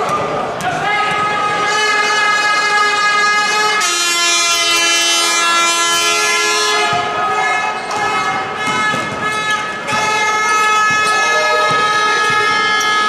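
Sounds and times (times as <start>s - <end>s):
long horn blasts: 1.5s - 7.2s, 8.5s - 13.0s.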